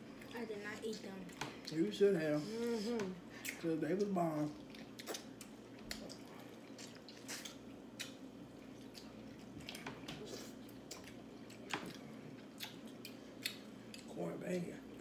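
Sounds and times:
chewing: 3.4s - 14.2s.

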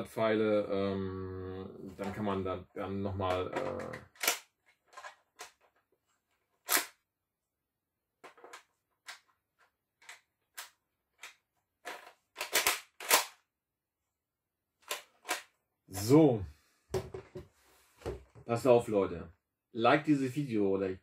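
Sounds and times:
toy blaster plastic clicks: 4.2s - 4.5s, 12.4s - 13.4s.

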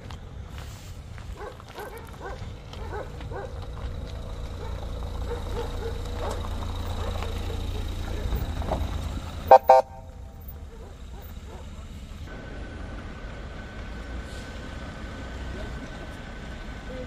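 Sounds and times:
vehicle engine rumble: 0.0s - 17.0s
dogs barking in distance: 1.3s - 3.8s, 4.4s - 8.5s, 10.4s - 12.0s
loud pitched horn blasts: 9.5s - 10.4s.

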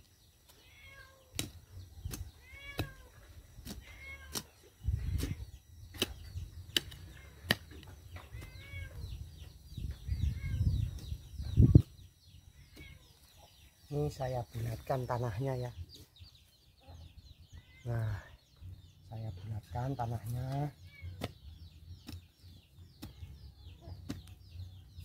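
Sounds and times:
spade digging into soil: 1.3s - 8.6s.

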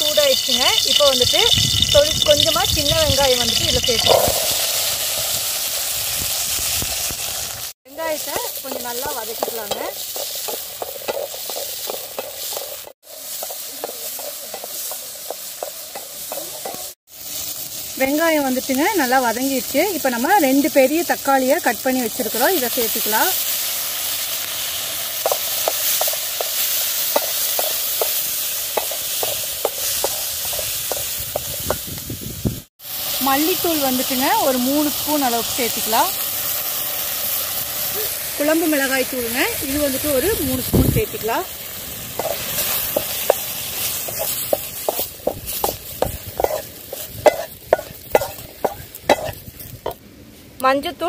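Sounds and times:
frying sizzle: 0.0s - 50.8s
spatula knocking and scraping pan: 8.3s - 16.9s, 25.2s - 31.9s, 42.2s - 50.0s.

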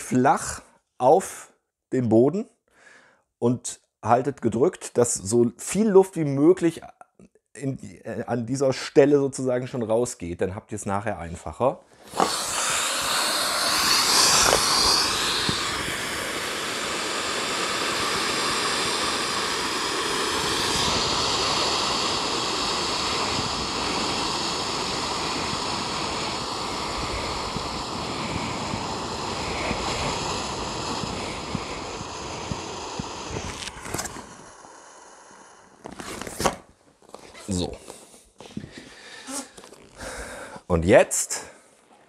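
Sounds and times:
air hissing out of valve: 12.0s - 36.5s, 38.7s - 40.6s.

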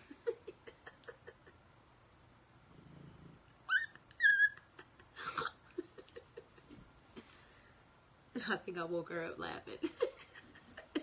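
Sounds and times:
dog whining: 3.6s - 4.7s.

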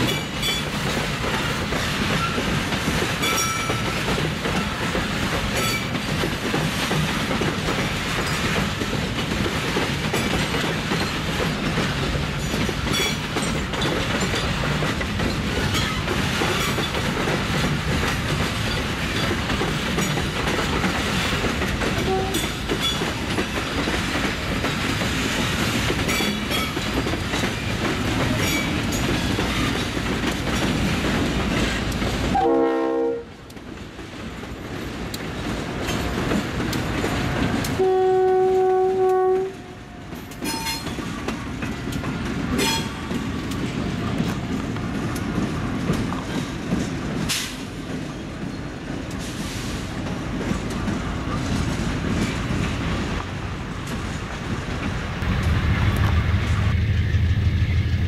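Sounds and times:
train wheels clattering over rail joints: 0.0s - 32.6s, 33.4s - 56.1s
train rumble: 0.0s - 58.0s
diesel locomotive horn blast: 22.0s - 22.5s, 32.3s - 33.4s, 37.8s - 40.0s.

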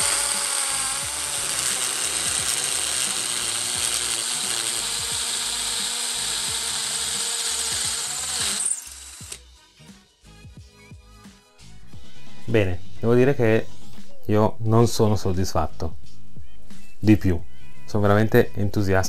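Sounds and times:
hammer drill boring into brick: 0.0s - 9.4s.

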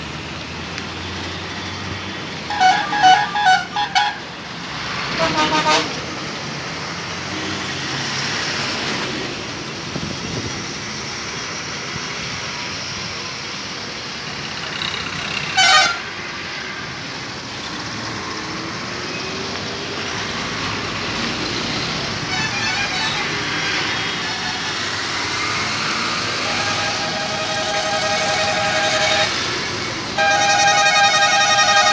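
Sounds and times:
highway traffic rumble: 0.0s - 31.9s
truck horn blast: 2.4s - 4.3s, 5.1s - 6.0s, 15.5s - 16.1s, 22.2s - 24.9s, 26.2s - 29.5s, 30.1s - 31.9s.

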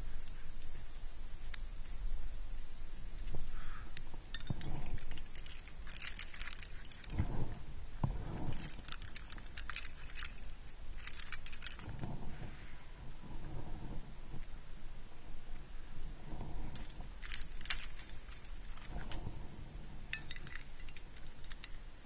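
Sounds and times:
carabiners jingling and clinking: 4.3s - 7.6s, 8.3s - 12.2s, 16.6s - 19.4s, 20.1s - 21.8s.

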